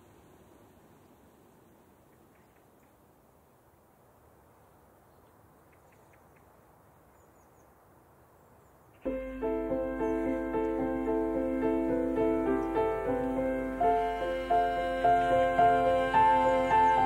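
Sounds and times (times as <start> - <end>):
slow piano music: 9.0 - 17.0.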